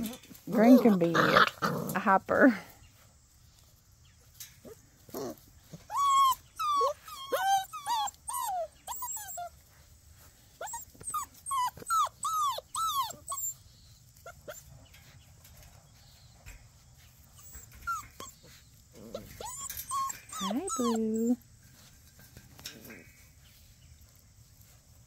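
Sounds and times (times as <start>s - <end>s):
puppies whining: 4.3s - 23.2s.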